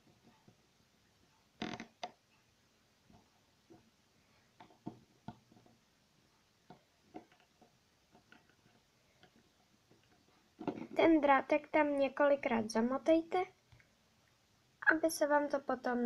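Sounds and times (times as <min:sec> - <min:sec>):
faint clicks and taps of plastic toy: 0:06.6 - 0:11.0.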